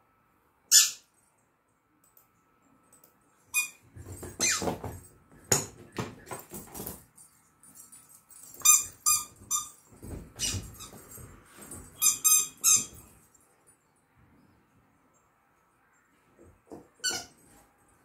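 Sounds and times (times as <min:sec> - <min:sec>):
rubber dog toy squeaking: 0:00.7 - 0:01.0, 0:12.0 - 0:13.0.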